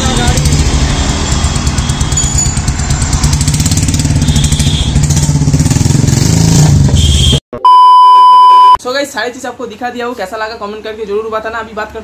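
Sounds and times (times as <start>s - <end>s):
motorcycle engine running loud: 0.0s - 7.0s.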